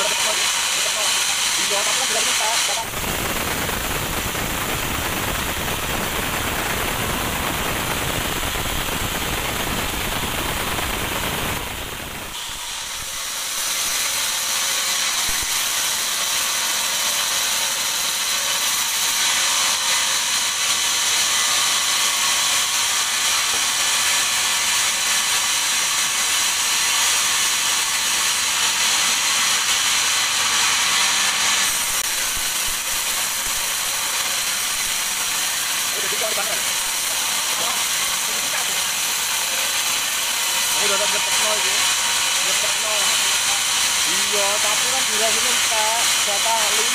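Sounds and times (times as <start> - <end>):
band saw cutting log: 0.0 - 46.9.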